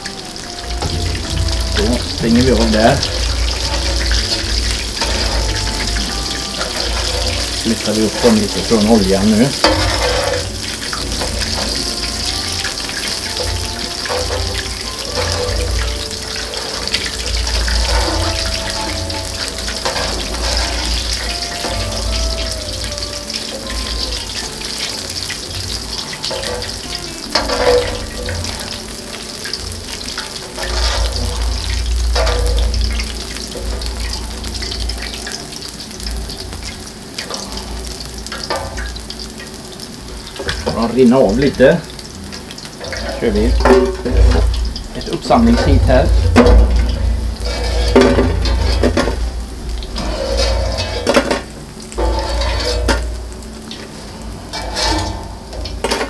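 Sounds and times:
food sizzling in oil: 0:00.0 - 0:56.0
low rumble: 0:00.6 - 0:08.6, 0:41.9 - 0:55.8
metal spatula scraping plate: 0:00.8 - 0:22.5, 0:26.1 - 0:28.8, 0:30.2 - 0:35.1, 0:45.4 - 0:49.2, 0:49.9 - 0:53.2, 0:54.5 - 0:56.0.

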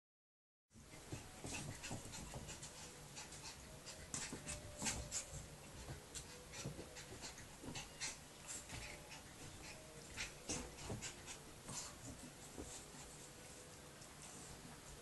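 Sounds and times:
puppy scuffing and clicking: 0:01.0 - 0:13.0
dog breathing: 0:05.9 - 0:13.2.

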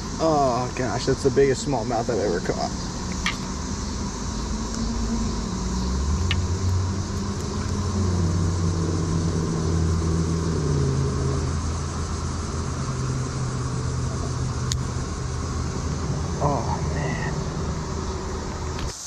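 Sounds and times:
distant engine hum: 0:00.0 - 0:19.0.

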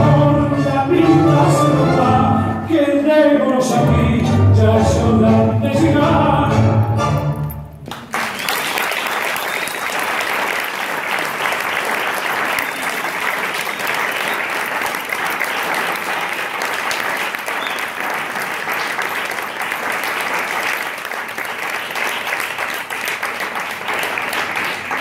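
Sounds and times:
audience applauding: 0:07.4 - 0:25.0.

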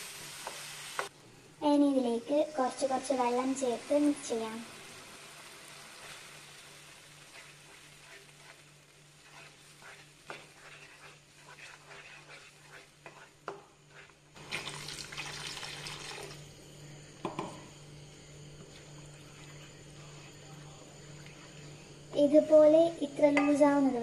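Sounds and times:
spatula scraping thick paste: 0:07.3 - 0:14.2.

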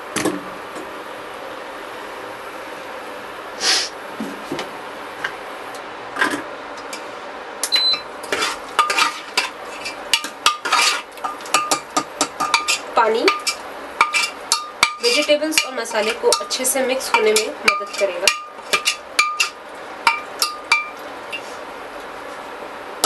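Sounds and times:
short electronic beep: 0:07.7 - 0:08.1
metal spoon scraping a pot: 0:08.2 - 0:19.6
pan sizzling: 0:08.2 - 0:23.0.

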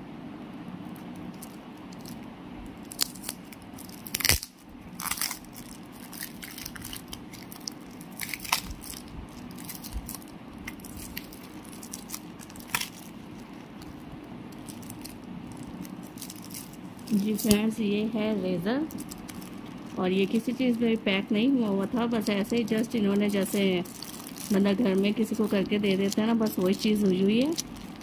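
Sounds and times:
cardboard and plastic tearing: 0:02.8 - 0:14.0, 0:14.6 - 0:17.7, 0:22.0 - 0:28.0.

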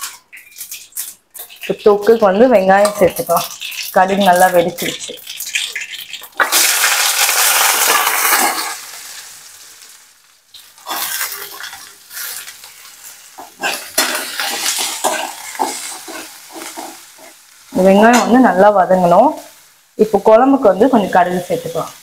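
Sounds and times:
onions sizzling in hot oil: 0:00.0 - 0:22.0
onions scraped from steel bowl: 0:10.8 - 0:17.4.

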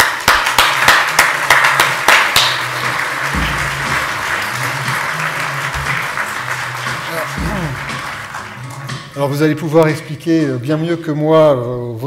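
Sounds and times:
audience applause: 0:00.0 - 0:09.2
loud claps close to microphone: 0:00.0 - 0:09.2
music: 0:00.0 - 0:12.0.

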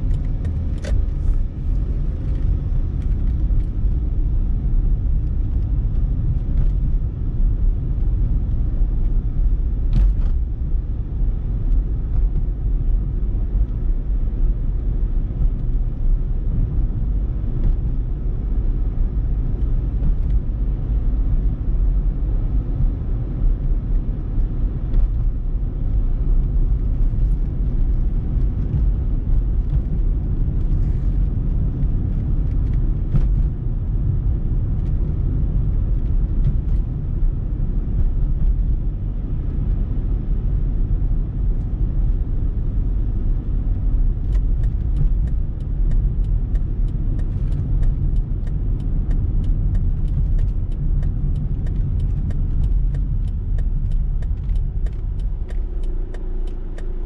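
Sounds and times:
car cabin road rumble: 0:00.0 - 0:57.0
turn signal clicking: 0:43.4 - 0:57.0.

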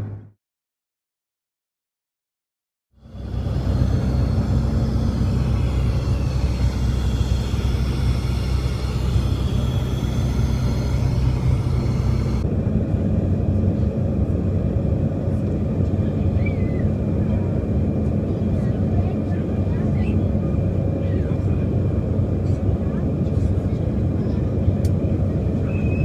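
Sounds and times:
low engine hum: 0:02.9 - 0:26.0
airflow noise: 0:03.0 - 0:22.4.

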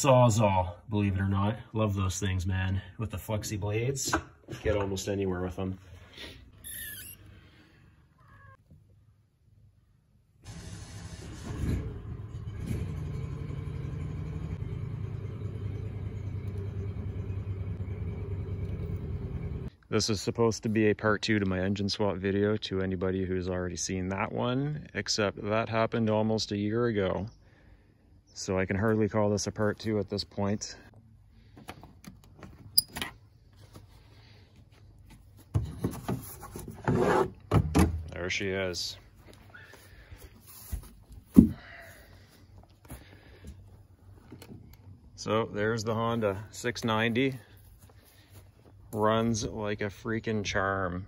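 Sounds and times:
atv engine running steadily: 0:12.2 - 0:19.6.

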